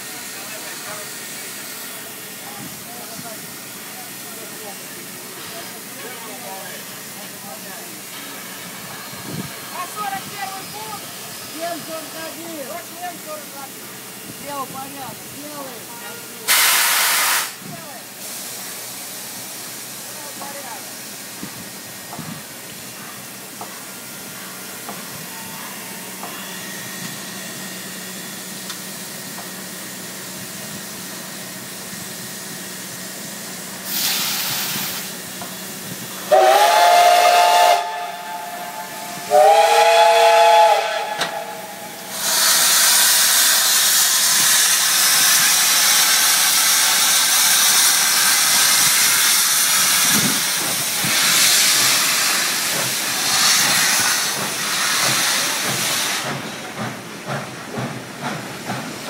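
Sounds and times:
steam hissing: 0.0s - 59.0s
steam whistle blasts: 16.5s - 17.6s, 36.3s - 42.6s.

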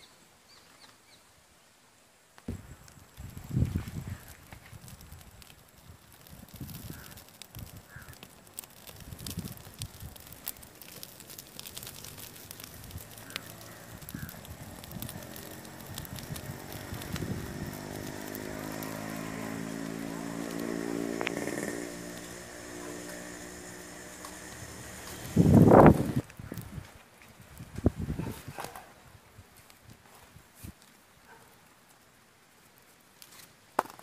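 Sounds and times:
burning palm fronds crackling: 2.3s - 34.0s
motor droning: 15.3s - 26.2s.

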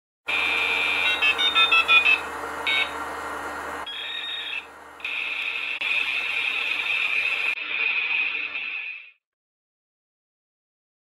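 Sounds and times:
high buzzing tone: 3.8s - 9.1s.

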